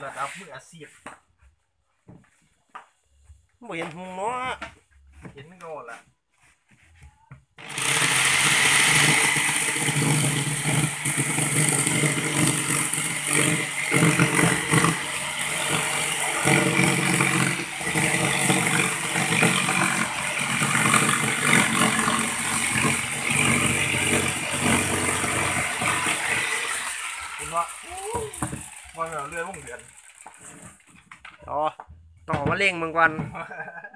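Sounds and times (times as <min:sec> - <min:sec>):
electric jigsaw sawing board: 0:07.6 - 0:31.4.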